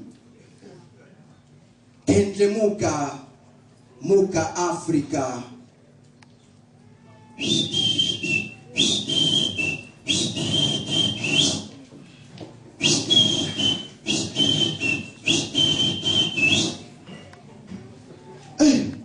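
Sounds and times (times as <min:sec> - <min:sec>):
shrill whistle blasts: 0:07.4 - 0:11.7, 0:12.8 - 0:16.8
breath noise: 0:07.6 - 0:16.9.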